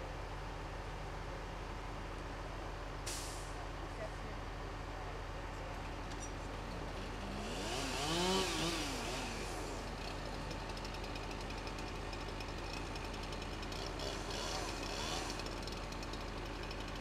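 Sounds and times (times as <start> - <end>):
chainsaw idling and revving: 6.8 - 17.0.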